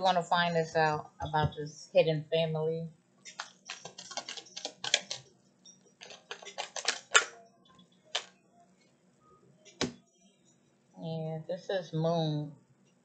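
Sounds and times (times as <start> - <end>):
cards being shuffled: 3.3 - 5.3, 6.0 - 7.4.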